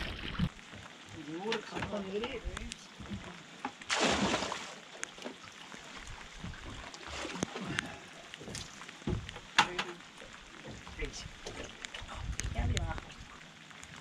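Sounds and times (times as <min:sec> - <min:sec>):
water splashing into sea: 0:00.0 - 0:00.6, 0:03.7 - 0:14.0.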